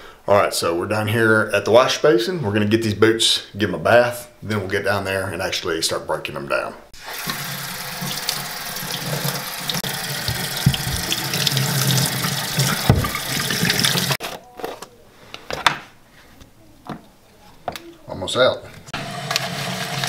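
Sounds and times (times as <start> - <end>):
water running into sink: 7.0 - 14.2, 19.0 - 20.0.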